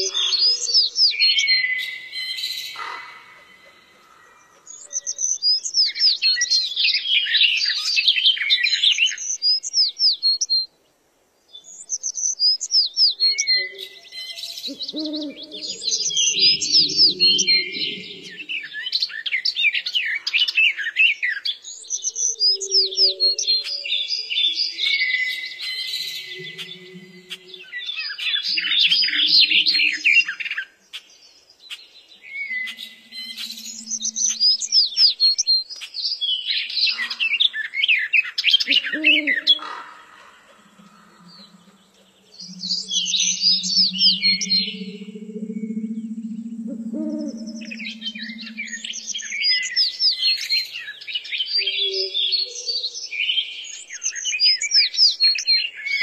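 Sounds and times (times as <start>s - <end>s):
gulls calling: 26.0s - 30.3s, 32.4s - 35.0s, 38.7s - 49.8s.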